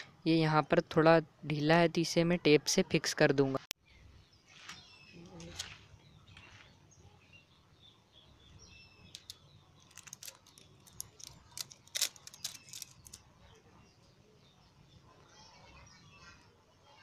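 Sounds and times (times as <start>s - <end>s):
tape peeling off roll: 9.2s - 13.2s.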